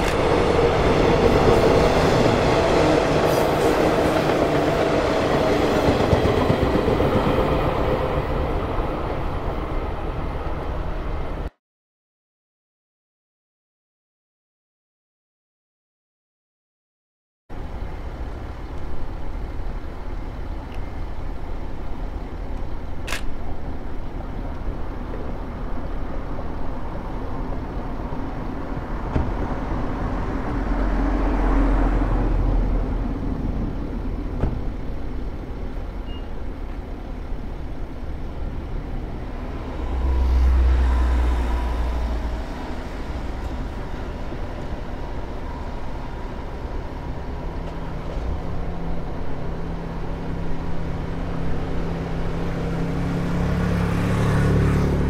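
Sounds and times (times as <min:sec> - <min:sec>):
deep vehicle rumble: 0:17.5 - 0:55.0.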